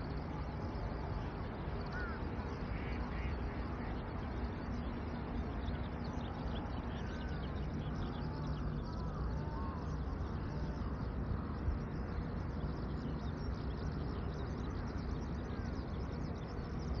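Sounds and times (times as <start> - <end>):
steady low rumble: 0.0 - 17.0
crows cawing: 1.9 - 2.2.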